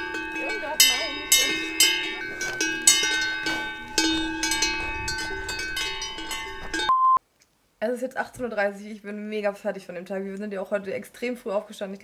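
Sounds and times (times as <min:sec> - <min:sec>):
cowbells clanking: 0:00.0 - 0:06.9.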